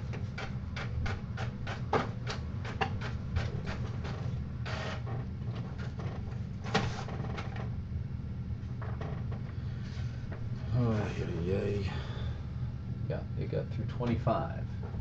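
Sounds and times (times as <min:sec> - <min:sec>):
printer whirring and clicking: 0:00.0 - 0:07.6.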